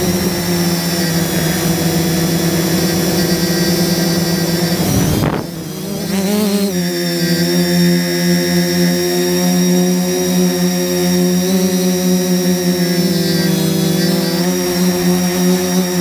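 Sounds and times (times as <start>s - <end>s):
drone propellers humming: 0.0s - 16.0s.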